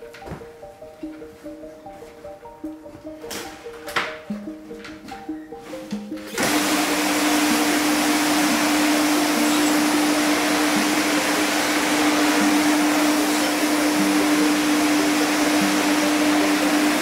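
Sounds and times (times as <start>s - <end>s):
floor scrubbing machine running: 6.3s - 17.0s.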